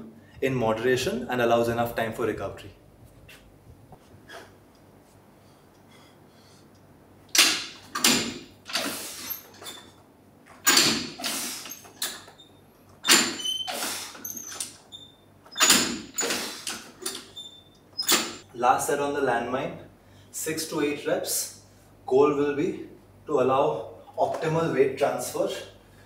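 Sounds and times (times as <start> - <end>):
sharp loud breaths: 8.7 - 9.5, 11.1 - 11.9, 13.7 - 14.3.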